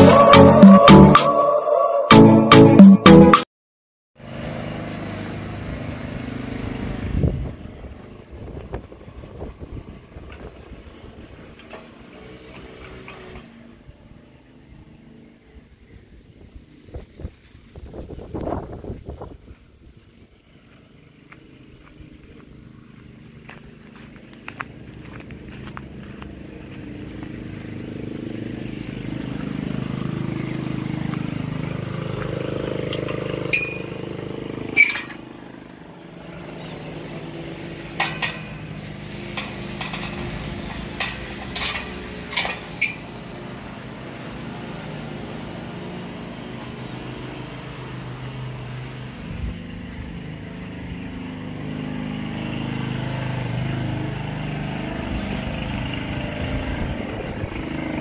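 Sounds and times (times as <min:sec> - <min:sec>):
lawn mower engine running: 0:04.2 - 0:18.0, 0:18.9 - 0:58.0.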